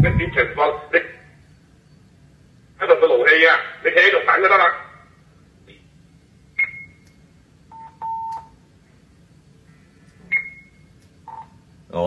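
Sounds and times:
two-way radio beeps: 0.0 - 0.8, 10.3 - 11.5.

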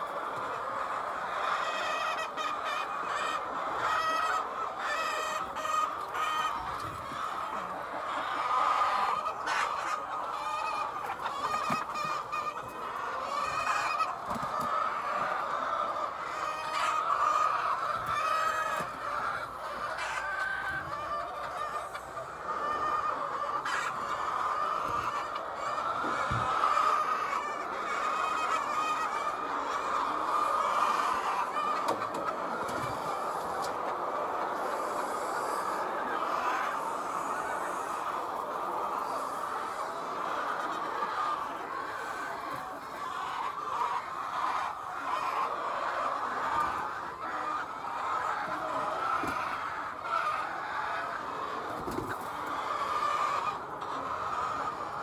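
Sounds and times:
hens clucking: 0.0 - 55.0.

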